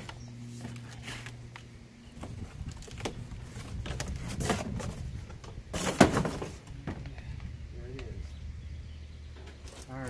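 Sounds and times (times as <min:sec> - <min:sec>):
cardboard rustling and scraping: 0:00.0 - 0:07.0.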